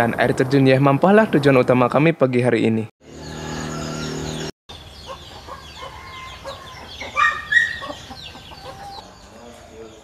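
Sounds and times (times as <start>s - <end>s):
small birds chirping: 3.0s - 10.0s
chicken calling: 3.2s - 9.4s.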